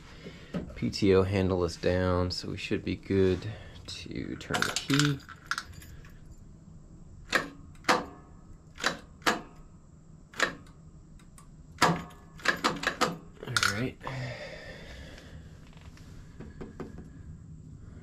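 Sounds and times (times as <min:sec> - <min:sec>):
ignition key clicks and knocks: 0:11.8 - 0:13.8.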